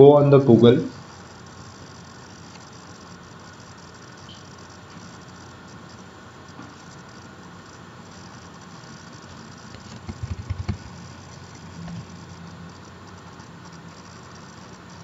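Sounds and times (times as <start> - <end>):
computer keyboard typing: 9.6 - 11.1.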